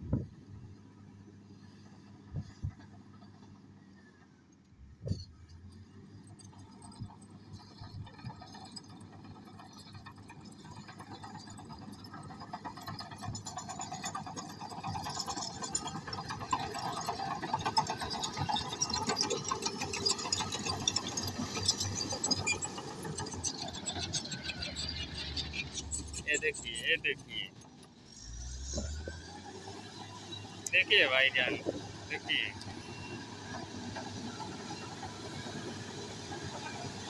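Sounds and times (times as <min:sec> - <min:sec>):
diesel engine running: 0:04.8 - 0:37.0
steel tracks clanking and rattling: 0:06.6 - 0:26.2.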